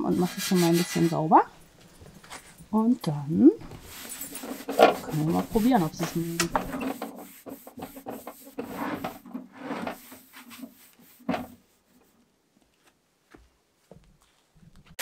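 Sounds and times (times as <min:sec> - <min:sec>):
cloth scrubbing on wood: 0:00.0 - 0:01.6, 0:03.6 - 0:12.2.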